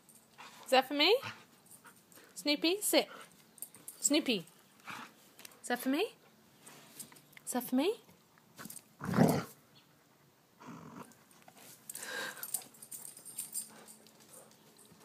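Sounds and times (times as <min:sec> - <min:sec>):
dog growling: 0:09.0 - 0:09.6, 0:10.6 - 0:11.2.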